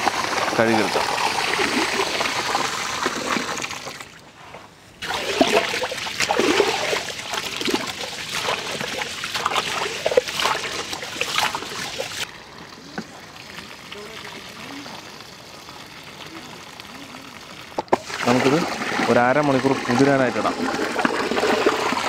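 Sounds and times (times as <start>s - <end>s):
water pouring into pot: 0.0s - 4.2s, 5.0s - 22.0s
hand swishing rice in water: 5.0s - 12.2s.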